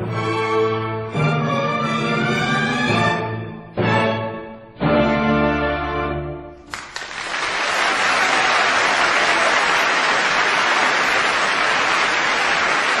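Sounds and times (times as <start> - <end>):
audience applauding: 6.7 - 13.0.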